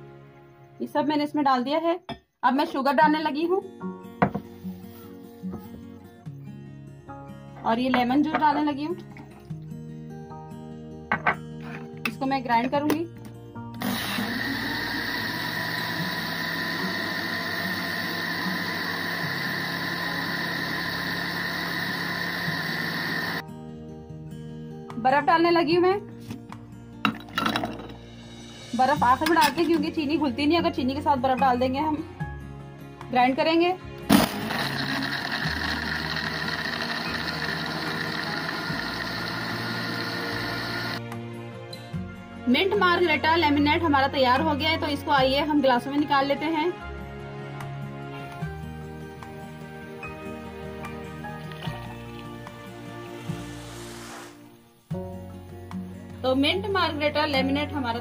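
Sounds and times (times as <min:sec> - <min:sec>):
blender motor running: 0:13.8 - 0:23.4, 0:34.0 - 0:41.0.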